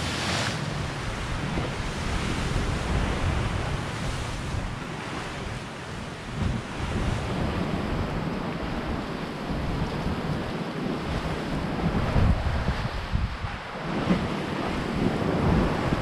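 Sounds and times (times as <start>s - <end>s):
sea surf: 0.0s - 16.0s
wind buffeting microphone: 0.0s - 16.0s.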